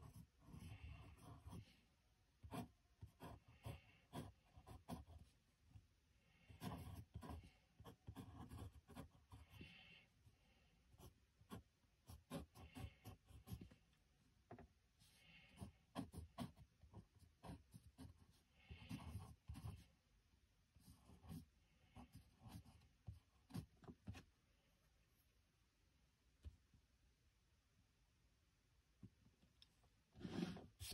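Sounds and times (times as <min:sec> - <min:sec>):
pencil scratching on paper: 0:00.0 - 0:20.0, 0:20.8 - 0:24.3, 0:30.2 - 0:30.9.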